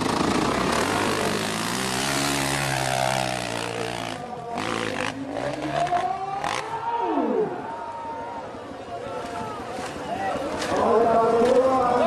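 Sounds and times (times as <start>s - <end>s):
motocross bike engine: 0.0s - 7.0s.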